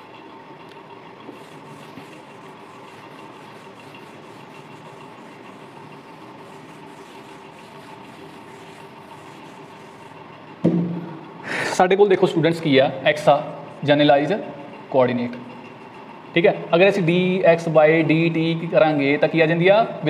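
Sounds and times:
steady background hum: 0.0 - 20.0
duster rubbing whiteboard: 1.2 - 10.6.

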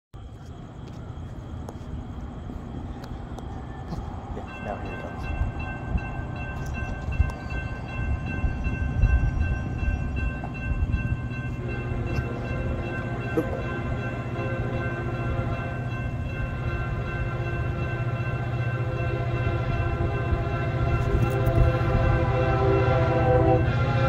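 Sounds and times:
railroad crossing bell ringing: 1.7 - 24.0
locomotive horn: 18.8 - 24.0.

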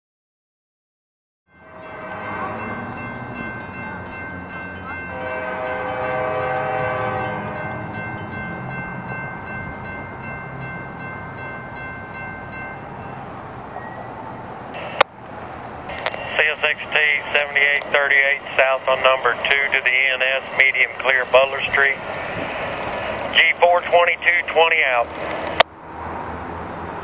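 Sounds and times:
locomotive air horn chord: 1.5 - 3.0, 5.0 - 7.7
low engine rumble: 1.7 - 25.7.

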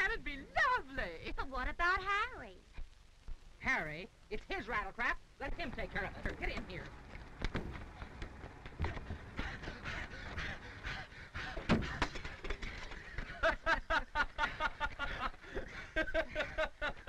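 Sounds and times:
film soundtrack hiss: 0.0 - 17.0
women giggling: 11.5 - 17.0.

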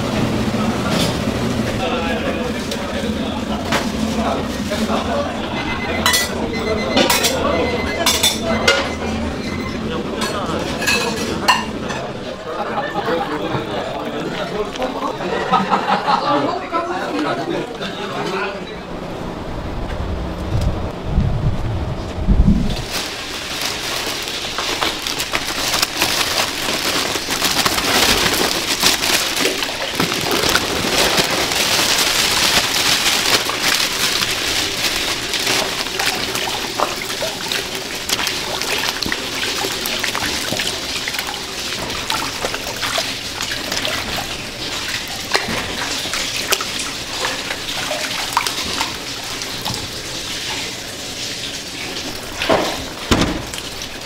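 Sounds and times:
water running in a steel tub: 22.6 - 54.0
small water splashes: 22.8 - 54.0.

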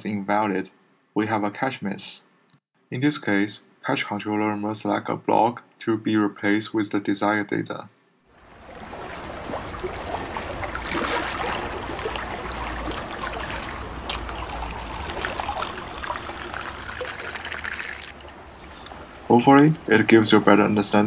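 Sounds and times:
water trickling and splashing: 8.4 - 19.3
bubbly crackle: 11.6 - 18.2.

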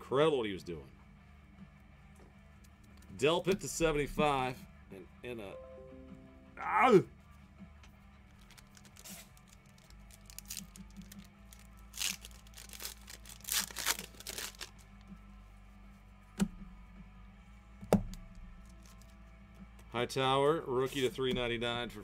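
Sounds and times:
wrappers ripping and crinkling: 8.3 - 15.0, 18.6 - 19.2.

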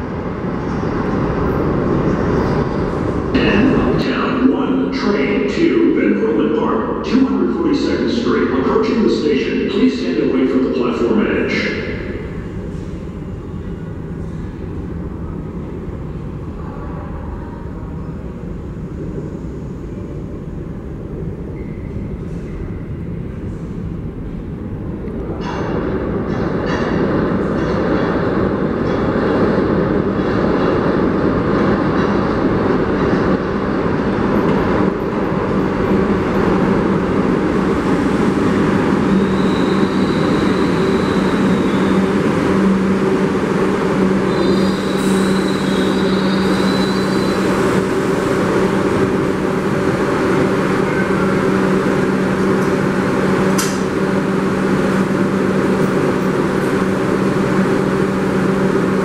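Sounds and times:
subway train wheels rumbling: 0.0 - 59.0
high brake squeals: 39.1 - 42.1, 44.2 - 47.6
train doors click: 53.4 - 54.0.

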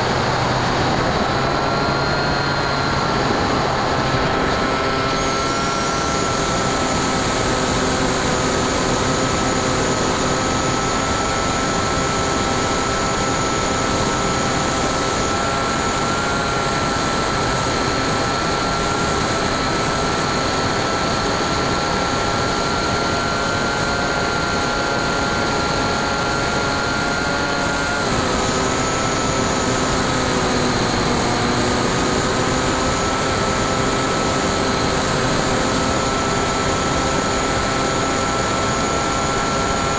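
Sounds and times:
electric motor whine: 0.0 - 39.9.

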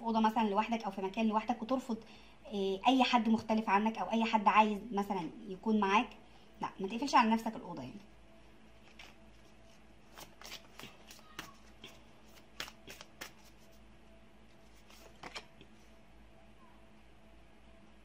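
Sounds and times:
faint steady hum: 0.0 - 18.0
cards clicking and tapping: 10.1 - 13.5, 14.9 - 15.6.

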